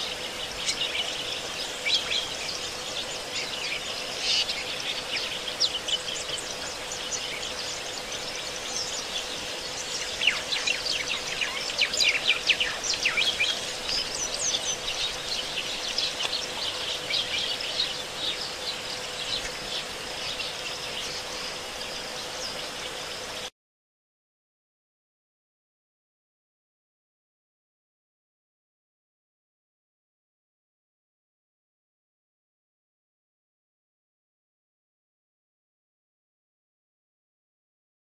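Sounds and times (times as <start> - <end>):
birds chirping: 0.0 - 23.5
faint hum: 0.0 - 23.5.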